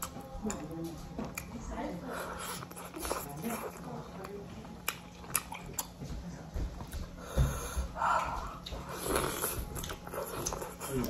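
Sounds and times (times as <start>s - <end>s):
person chewing: 0.0s - 1.5s, 2.1s - 3.9s, 4.7s - 6.0s, 6.9s - 11.0s.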